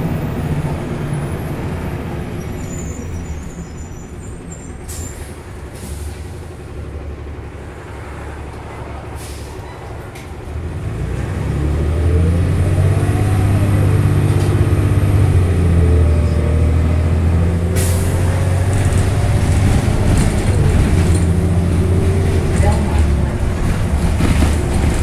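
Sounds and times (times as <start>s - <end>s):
bus engine pulling away: 0.0s - 25.0s
air brake hisses: 4.9s - 6.5s, 9.2s - 9.9s, 17.8s - 18.2s.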